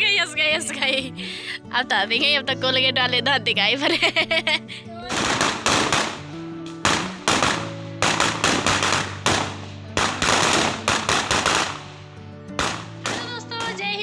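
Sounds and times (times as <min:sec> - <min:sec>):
background music: 0:00.0 - 0:14.0
firecrackers banging: 0:05.1 - 0:13.8.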